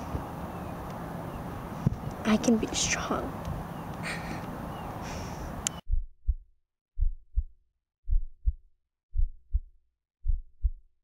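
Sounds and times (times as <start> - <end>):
heartbeat thumps: 5.9 - 11.0.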